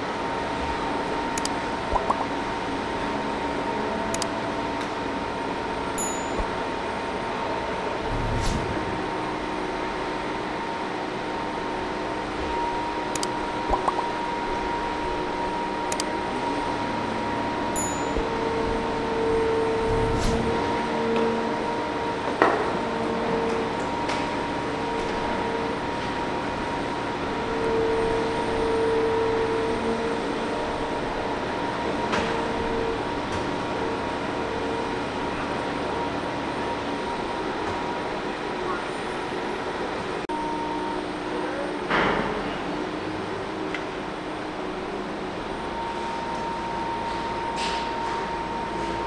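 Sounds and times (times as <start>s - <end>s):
machinery hum: 0.0s - 49.0s
metallic clinks: 6.0s - 6.6s.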